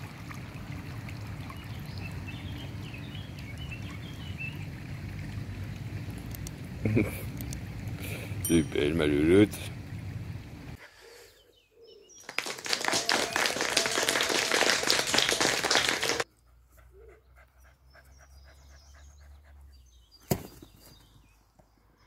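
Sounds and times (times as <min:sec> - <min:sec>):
dog panting: 0:16.5 - 0:19.9.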